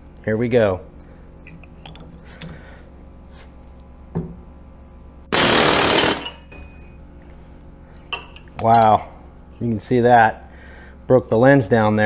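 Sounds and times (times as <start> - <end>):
pneumatic air hammer burst: 5.3 - 6.4.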